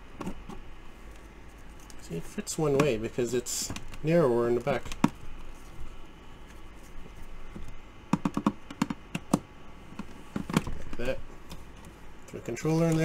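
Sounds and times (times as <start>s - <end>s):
plastic tray clicking and knocking: 8.1s - 9.4s.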